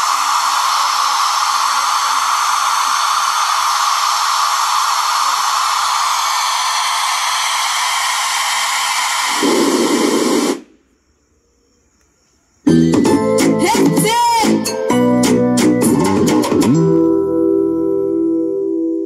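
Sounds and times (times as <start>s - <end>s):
deeper band of noise: 0.0s - 10.9s
test noise hiss through speakers: 0.0s - 12.6s.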